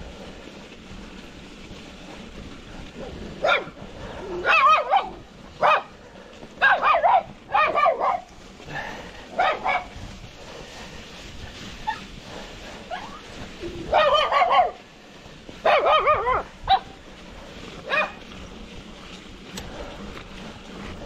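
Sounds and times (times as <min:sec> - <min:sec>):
wind and riding noise: 0:00.0 - 0:21.0
dog barking and yelping: 0:03.4 - 0:03.8, 0:04.4 - 0:05.9, 0:06.6 - 0:08.3, 0:09.4 - 0:09.9, 0:13.8 - 0:14.8, 0:15.6 - 0:16.9, 0:17.9 - 0:18.2.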